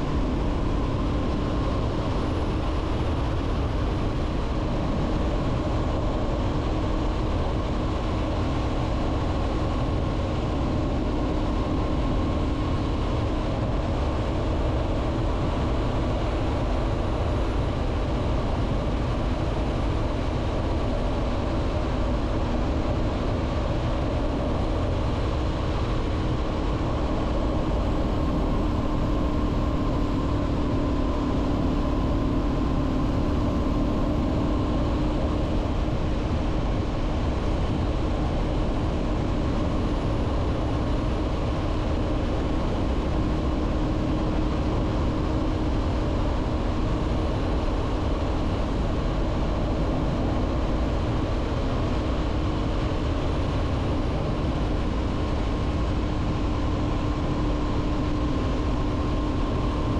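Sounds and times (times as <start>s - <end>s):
wind and road noise: 0.0s - 59.9s.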